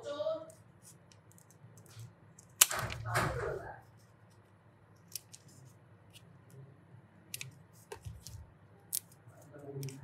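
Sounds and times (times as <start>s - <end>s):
scissors snipping paper: 7.3s - 10.0s.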